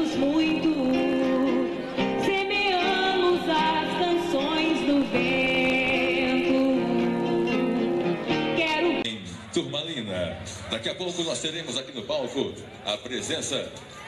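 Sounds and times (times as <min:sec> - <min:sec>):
song with guitar and singing: 0:00.0 - 0:09.1.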